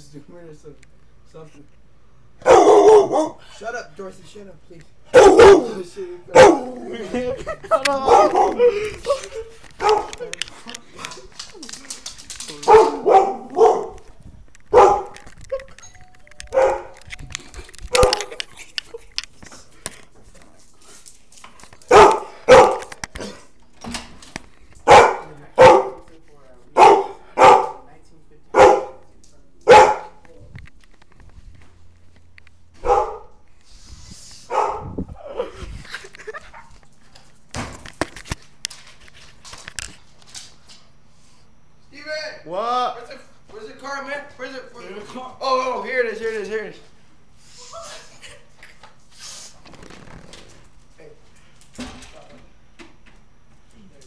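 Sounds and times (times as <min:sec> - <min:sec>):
dog barking: 0:02.4 - 0:03.4, 0:05.1 - 0:06.9, 0:08.0 - 0:08.8, 0:09.8 - 0:10.2, 0:12.6 - 0:14.0, 0:14.7 - 0:15.2, 0:16.5 - 0:17.0, 0:17.9 - 0:18.4, 0:21.9 - 0:22.9, 0:24.8 - 0:26.1, 0:26.8 - 0:27.9, 0:28.5 - 0:29.1, 0:29.7 - 0:30.2, 0:32.8 - 0:33.4, 0:34.5 - 0:35.5.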